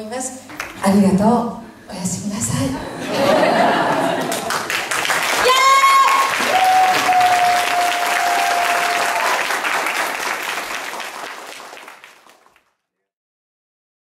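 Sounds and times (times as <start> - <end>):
audience applauding: 3.9 - 12.8.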